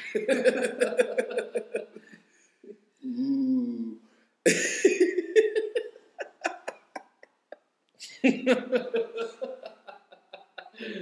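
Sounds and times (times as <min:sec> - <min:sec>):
man laughing: 0:00.0 - 0:02.0, 0:04.5 - 0:11.0
man humming: 0:03.0 - 0:04.0.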